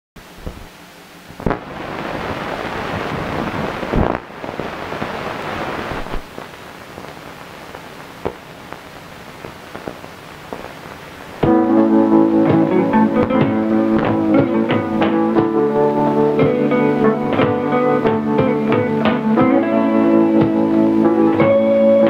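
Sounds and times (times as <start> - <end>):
film soundtrack hiss and crackle: 0.2 - 22.0
sharp pops and clicks: 8.0 - 10.8.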